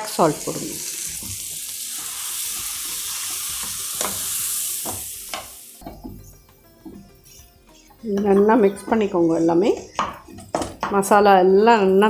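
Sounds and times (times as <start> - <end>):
food sizzling in oil: 0.0 - 8.0.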